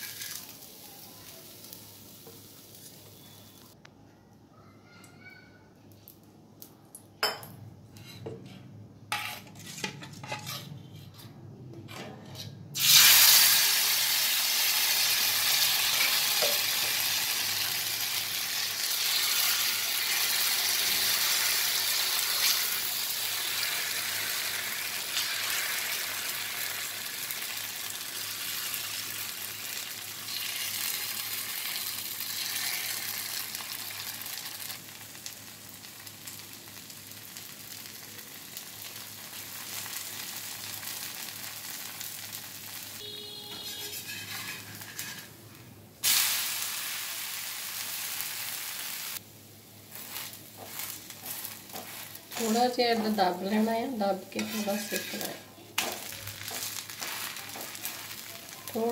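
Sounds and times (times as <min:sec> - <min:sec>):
batter sizzling on hot pan: 0:00.0 - 0:03.8, 0:12.8 - 0:58.9.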